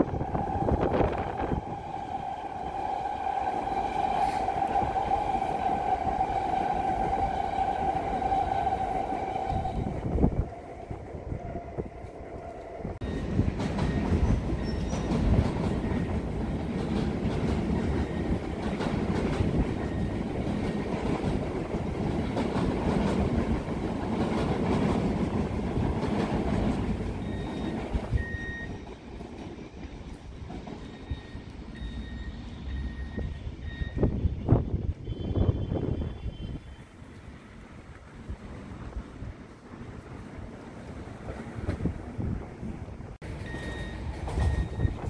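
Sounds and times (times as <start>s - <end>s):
train rumbling across bridge: 0.0s - 45.0s
high-pitched wheel squeals: 13.0s - 15.1s.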